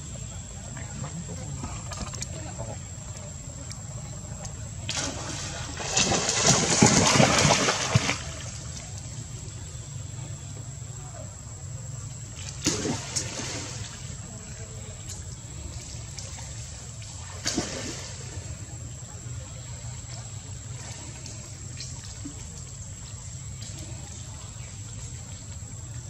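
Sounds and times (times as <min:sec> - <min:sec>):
water splashing: 0:00.5 - 0:10.2, 0:12.2 - 0:26.0.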